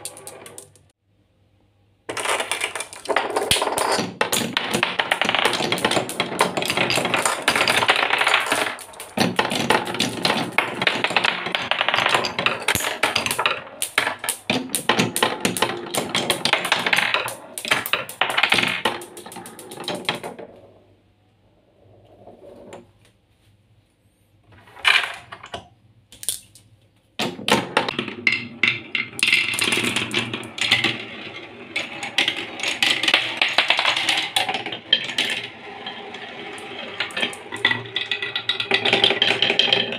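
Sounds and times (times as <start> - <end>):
marbles rattling down wooden run: 0.0 - 0.9, 2.1 - 20.4, 27.6 - 39.9.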